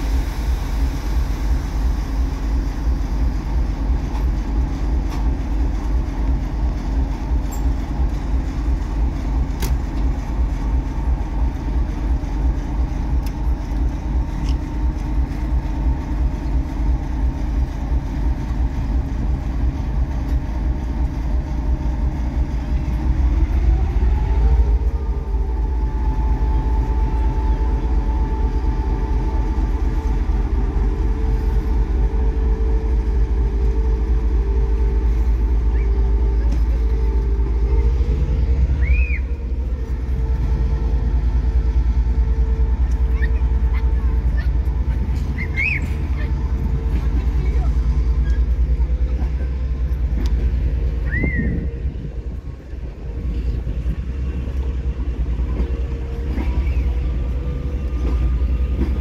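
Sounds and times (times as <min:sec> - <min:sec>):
diesel locomotive engine rumbling: 0:00.0 - 0:59.0.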